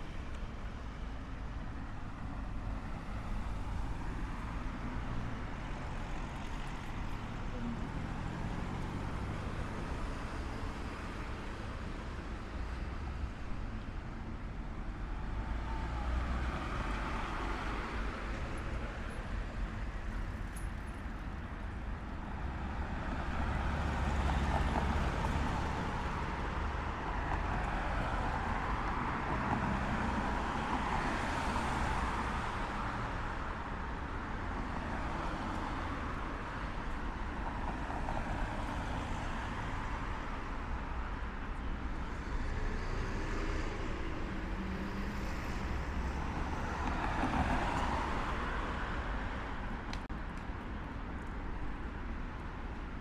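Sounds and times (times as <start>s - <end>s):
passing cars rumbling: 2.1s - 13.4s, 15.1s - 50.4s.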